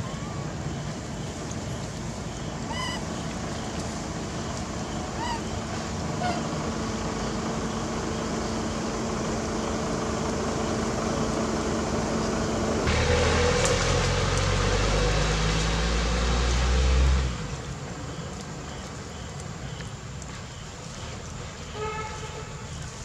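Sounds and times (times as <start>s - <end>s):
low hum: 0.0s - 17.8s.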